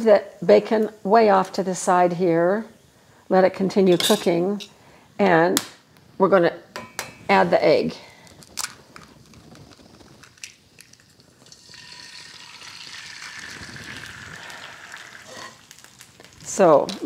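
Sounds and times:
egg sizzling in skillet: 8.9s - 16.7s.

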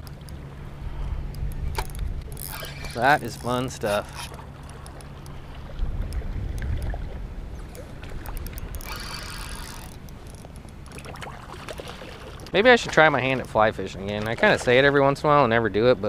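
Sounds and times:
wind rumble on microphone: 0.0s - 4.3s, 5.2s - 11.4s
water moving in shallows: 0.0s - 16.0s
short splash: 11.0s - 13.1s.

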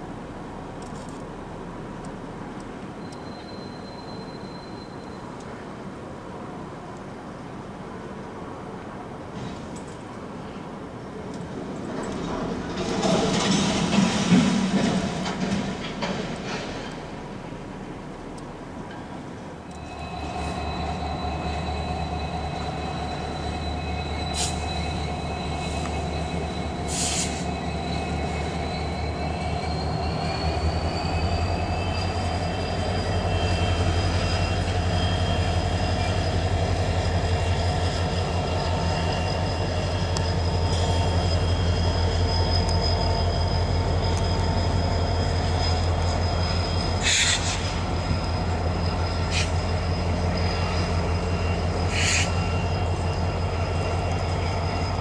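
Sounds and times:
freight train rumbling past: 0.0s - 55.0s
high-pitched wheel squeal: 3.0s - 5.4s, 19.7s - 55.0s.

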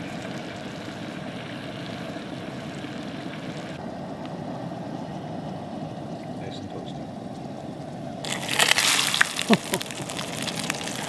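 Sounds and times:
bacon sizzling in a pan: 8.2s - 11.0s.

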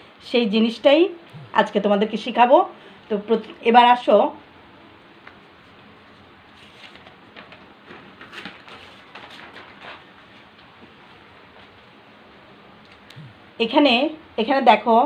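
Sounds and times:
paper rustling and crinkling: 5.3s - 11.9s.

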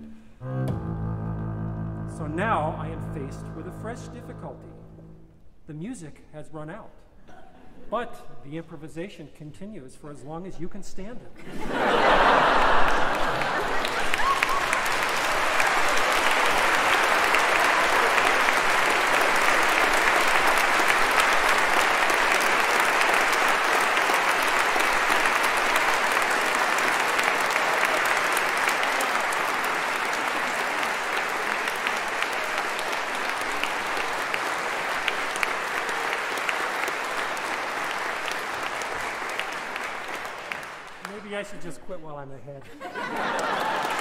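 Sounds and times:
audience applauding: 11.8s - 41.5s, 42.9s - 44.0s.

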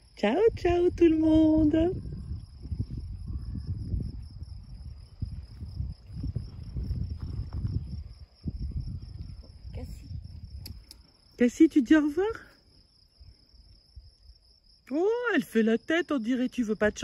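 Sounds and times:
crickets trilling: 0.0s - 17.0s
wind buffeting microphone: 0.2s - 11.2s.

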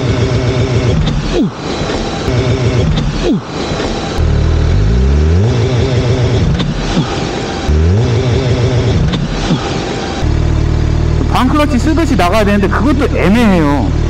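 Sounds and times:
motorcycle engine revving: 0.0s - 1.4s, 2.2s - 3.3s, 4.1s - 14.0s.

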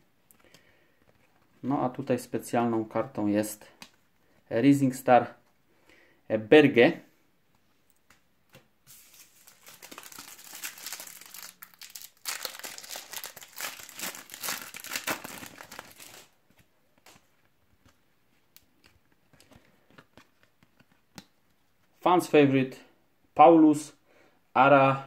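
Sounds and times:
foil packet tearing and crinkling: 8.9s - 16.3s.

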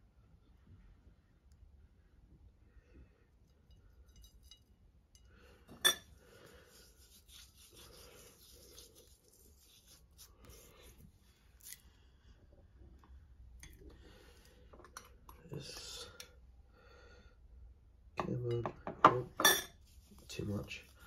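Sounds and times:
hands rubbing seasoning into meat: 6.3s - 11.8s, 19.8s - 21.0s.

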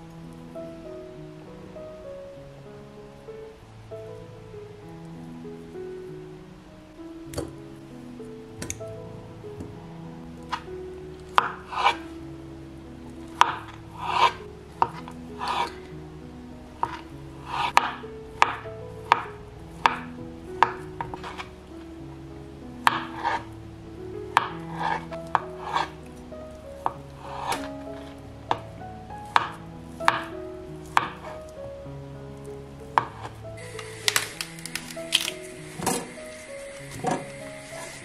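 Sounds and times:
quiet background music: 0.0s - 38.0s
knife hitting cutting board: 31.0s - 31.4s.

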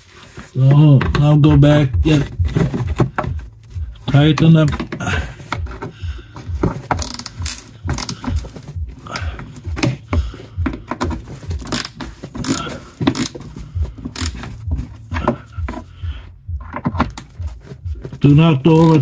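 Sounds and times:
tool scraping and knocking: 0.0s - 16.0s, 16.6s - 19.0s
ratchet clicking: 11.6s - 13.3s.

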